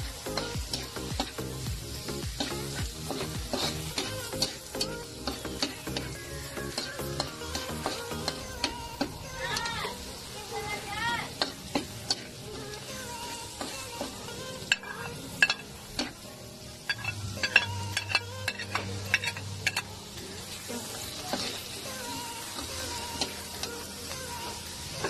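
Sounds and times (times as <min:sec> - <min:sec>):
onions sizzling in hot oil: 0:00.0 - 0:25.0
metal spatula scraping a wok: 0:02.4 - 0:09.8, 0:16.9 - 0:19.9.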